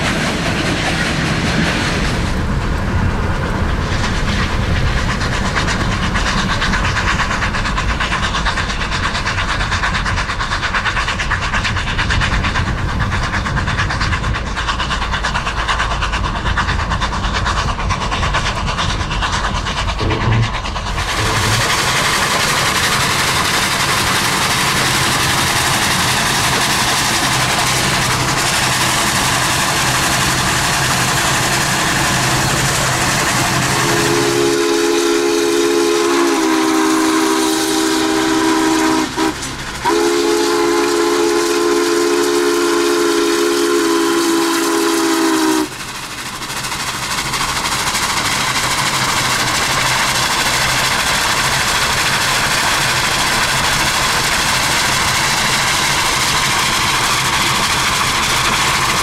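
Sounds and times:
steam chime whistle: 0:33.8 - 0:45.7.

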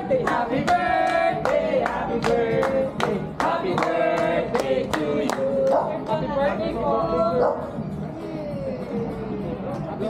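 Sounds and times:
group singing: 0:00.0 - 0:07.7
hands clapping along: 0:00.2 - 0:06.2.

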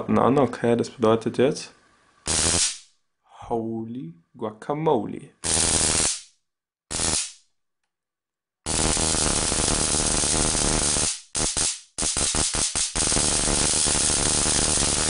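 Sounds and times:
electric arc crackling: 0:02.2 - 0:02.9, 0:05.4 - 0:06.3, 0:06.9 - 0:07.4, 0:08.7 - 0:15.0.

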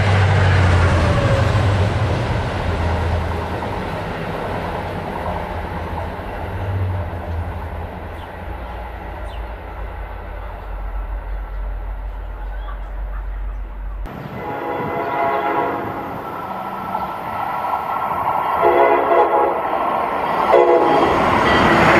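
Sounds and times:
train rumbling past: 0:00.0 - 0:21.9
train wheel noise: 0:00.0 - 0:21.9.

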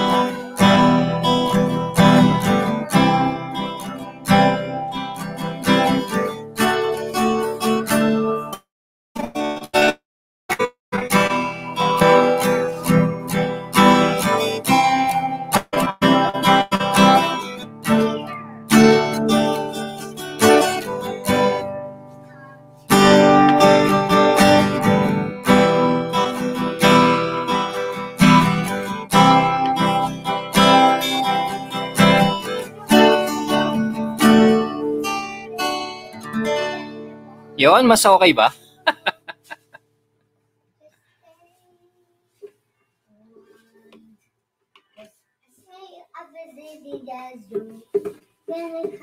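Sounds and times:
acoustic string instrument strumming: 0:00.0 - 0:08.6, 0:10.5 - 0:39.5.

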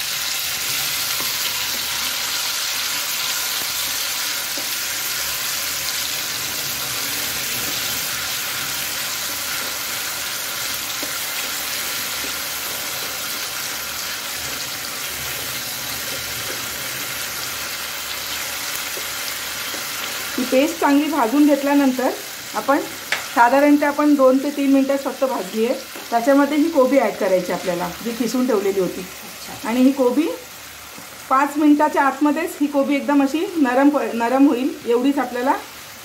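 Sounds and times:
paste sizzling in hot oil: 0:00.0 - 0:36.0
spatula stirring in pan: 0:06.9 - 0:20.4.

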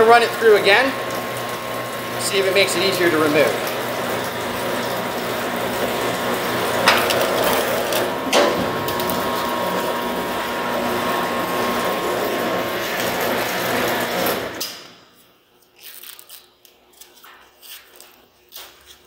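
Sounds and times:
cable stripping machine droning: 0:00.0 - 0:15.1.

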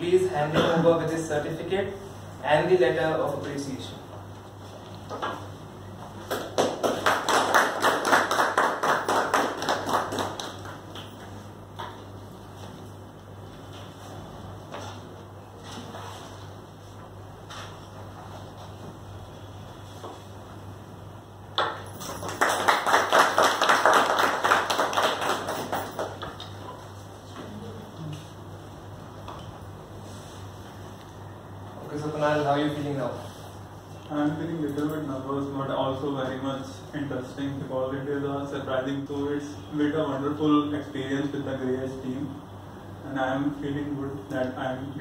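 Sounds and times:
people clapping: 0:06.2 - 0:11.4, 0:21.6 - 0:26.7
small group applauding: 0:06.2 - 0:11.4, 0:21.6 - 0:26.8.

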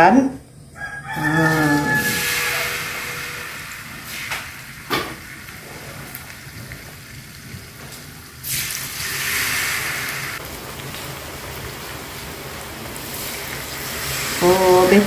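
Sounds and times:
batter sizzling in hot oil: 0:00.8 - 0:15.0.

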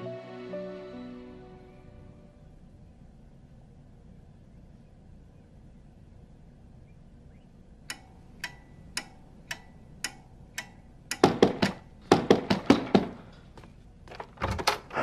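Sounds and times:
clock ticking: 0:07.8 - 0:12.8
rapid knocking on door: 0:11.2 - 0:13.2.

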